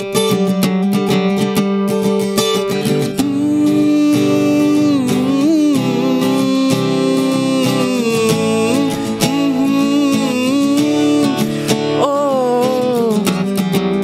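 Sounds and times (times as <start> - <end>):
strummed acoustic guitar: 0.0 - 14.0
man singing wavering notes: 3.2 - 13.5.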